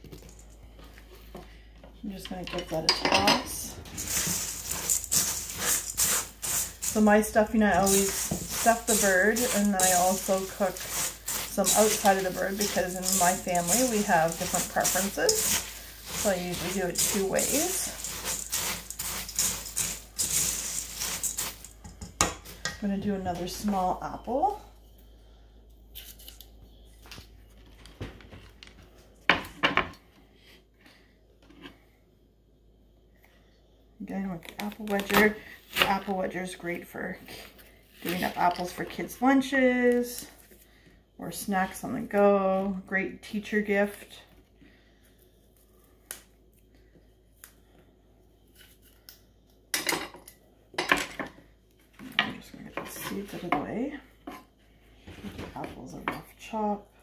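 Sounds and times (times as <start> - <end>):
utensils clattering: 2.4 - 22.2.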